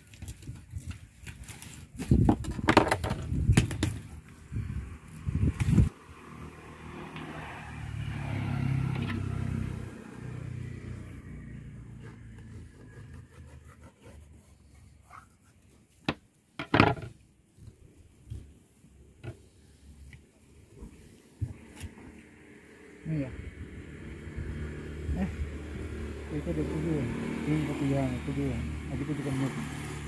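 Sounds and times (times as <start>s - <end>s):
vehicle engine humming: 4.0s - 14.0s.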